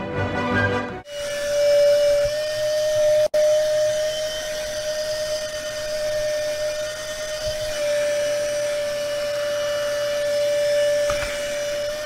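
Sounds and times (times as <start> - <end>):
mini vacuum cleaner whine: 1.1 - 12.0.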